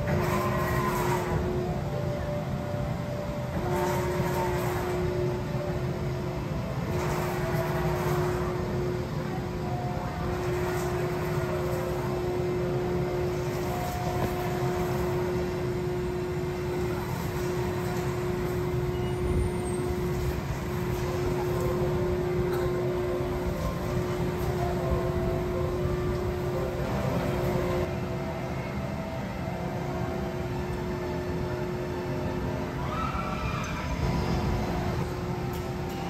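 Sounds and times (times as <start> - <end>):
carnival ride mechanical hum: 0.0 - 36.0.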